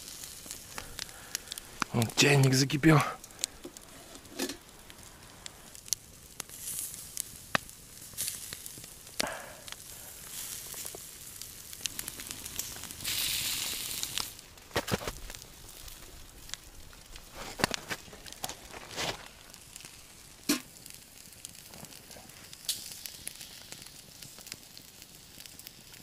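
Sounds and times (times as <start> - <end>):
meat sizzling on grill: 0.0 - 26.0
pops and crackles: 0.0 - 26.0
burst of hissing: 11.9 - 14.4.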